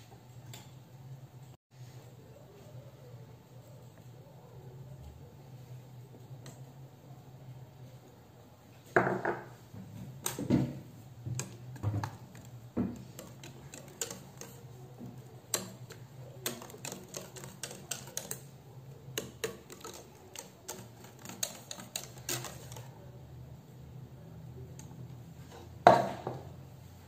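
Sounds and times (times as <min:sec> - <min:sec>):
whisk clicking against saucepan: 0:11.3 - 0:22.9.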